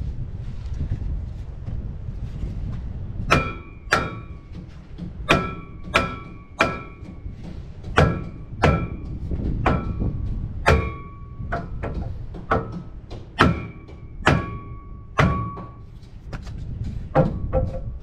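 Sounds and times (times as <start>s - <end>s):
hammer clanging on steel: 3.3s - 16.2s, 17.0s - 18.0s.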